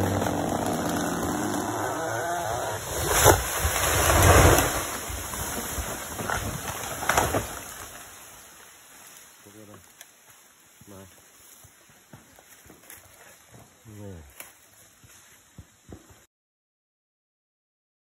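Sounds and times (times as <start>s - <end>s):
chainsaw engine: 0.0s - 7.4s
tree crashing down: 0.0s - 9.4s
wood cracking: 0.0s - 10.3s.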